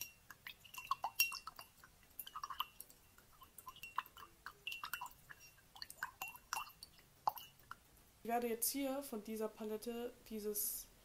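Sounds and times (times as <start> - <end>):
mouth clicks and lip smacks: 0.3 - 7.9.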